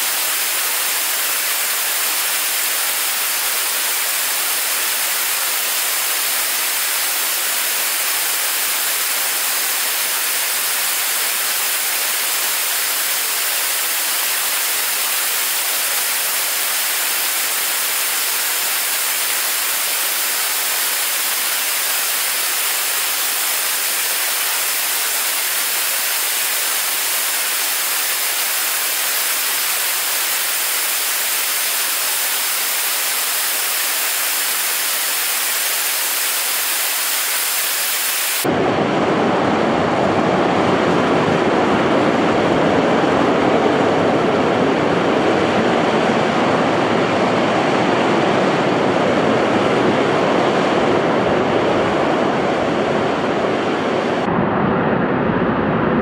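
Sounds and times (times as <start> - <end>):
rocket engine hissing: 0.0 - 38.5.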